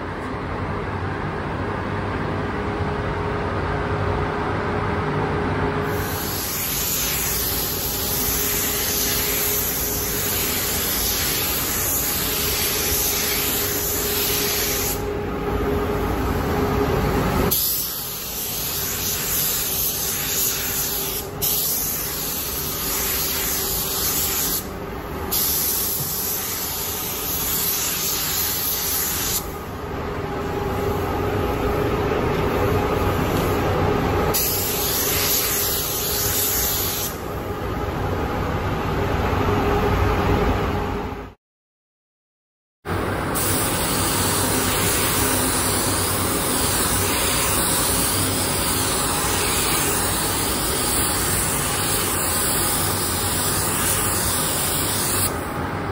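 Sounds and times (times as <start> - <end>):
paint spray gun hissing: 5.9 - 15.1, 17.5 - 24.7, 25.3 - 29.4, 34.4 - 37.2, 43.4 - 55.4.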